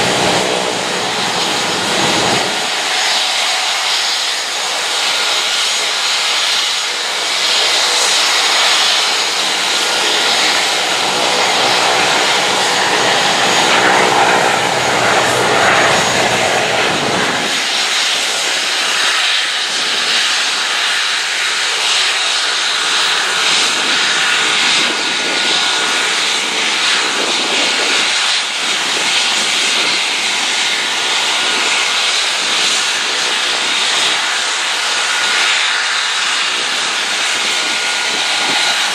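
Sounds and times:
helicopter whine and rush: 0.0 - 38.9.

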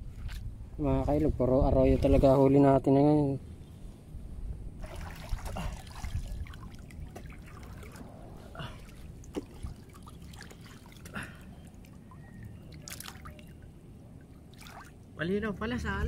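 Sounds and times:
light water splashes: 0.0 - 0.5, 4.8 - 15.3
river water trickling: 4.8 - 15.6.

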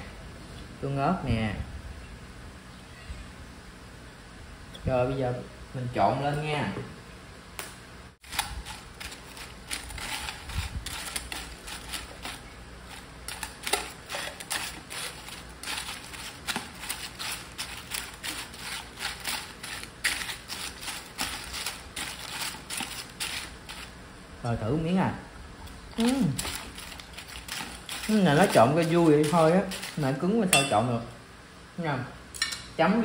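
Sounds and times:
chips crackling in metal bowl: 8.2 - 24.0, 25.7 - 30.5.

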